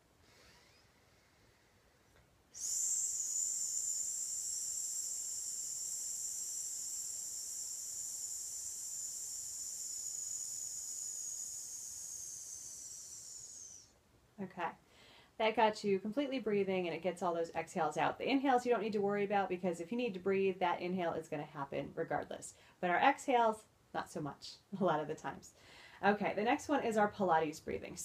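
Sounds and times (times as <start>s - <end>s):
woman hissing through teeth: 2.5s - 14.0s.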